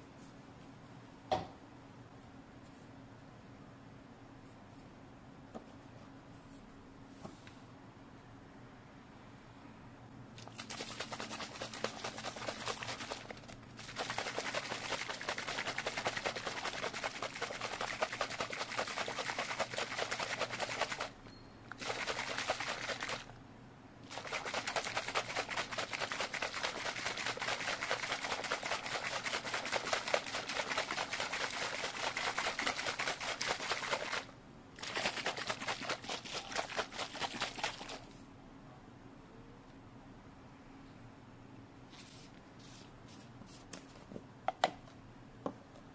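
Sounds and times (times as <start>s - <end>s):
shaker cup rattling: 10.4s - 23.3s, 24.0s - 38.2s.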